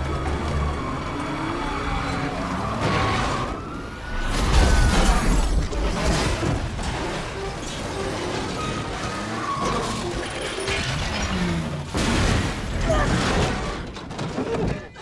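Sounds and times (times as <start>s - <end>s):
police siren wailing: 0.0s - 5.6s
car engines: 0.0s - 14.2s
car crashes and impacts: 2.7s - 15.0s.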